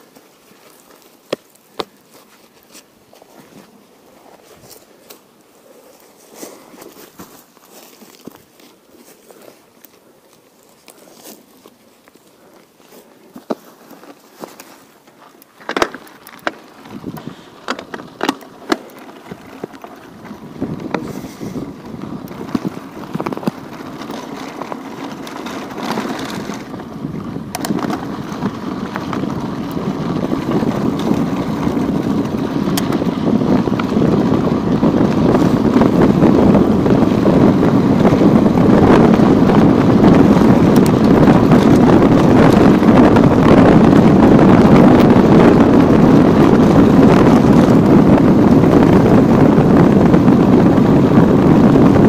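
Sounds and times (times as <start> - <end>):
wind rushing over microphone: 15.8 - 52.0.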